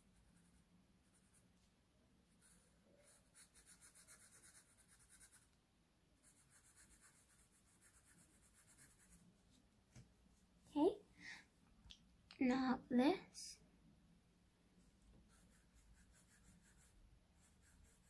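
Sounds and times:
marker scratching on paper: 2.4 - 5.5, 6.2 - 9.2, 15.2 - 18.0.

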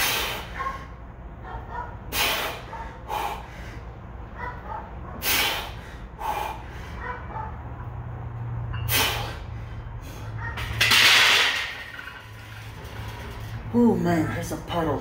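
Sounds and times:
man breathing hard: 0.0 - 1.0, 2.0 - 4.2, 5.1 - 7.3, 8.9 - 10.4.

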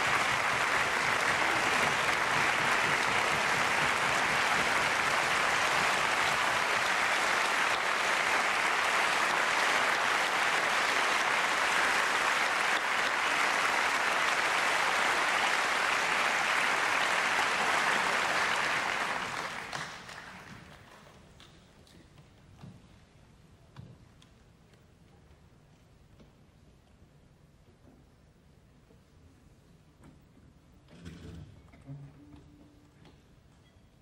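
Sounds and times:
audience applauding: 0.0 - 21.1.

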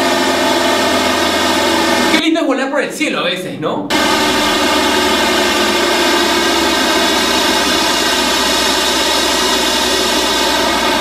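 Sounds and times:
small plane engine and propeller: 3.9 - 11.0.

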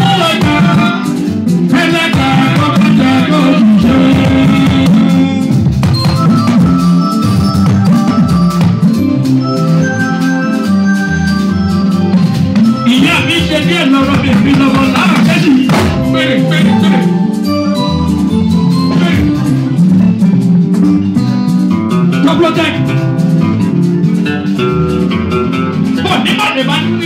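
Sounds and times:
man singing into microphone: 0.0 - 5.7
live band with guitar and drums: 0.0 - 27.0.

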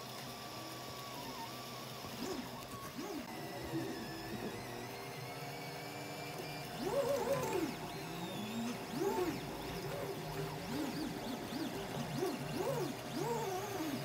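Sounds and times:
printer stepper motors whining: 0.0 - 14.0.

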